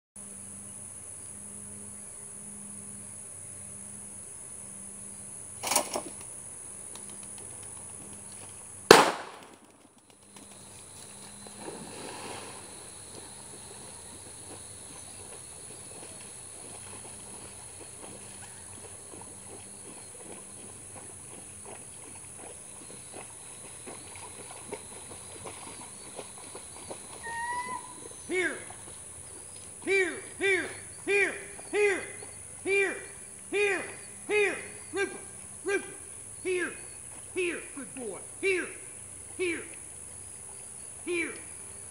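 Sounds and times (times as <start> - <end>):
soft splashing: 10.4 - 36.2.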